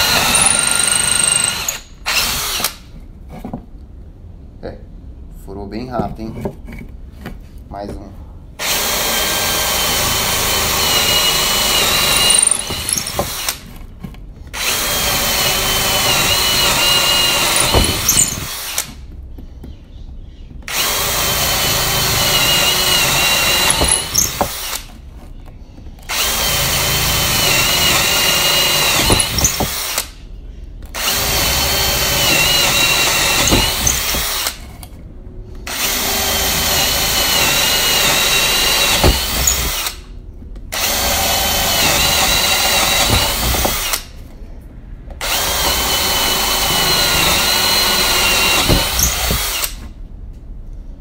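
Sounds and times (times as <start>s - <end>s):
cordless drill boring into wood: 0.0s - 2.8s, 8.6s - 13.6s, 14.6s - 18.9s, 20.7s - 24.9s, 26.1s - 30.1s, 31.0s - 34.6s, 35.7s - 40.0s, 40.7s - 44.1s, 45.2s - 49.8s.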